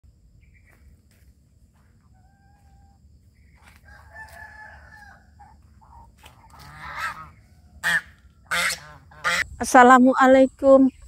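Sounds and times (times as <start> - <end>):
rooster crowing: 2.1 - 8.9.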